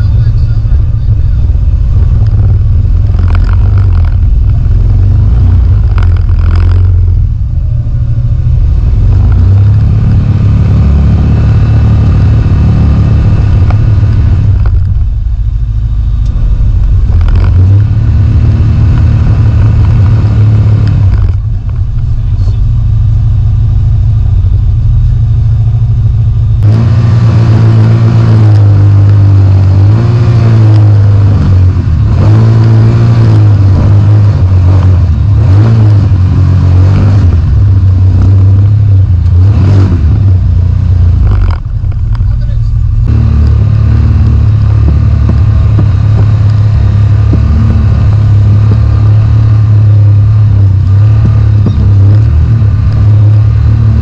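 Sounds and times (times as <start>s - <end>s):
utility vehicle engine revving: 0.0s - 54.0s.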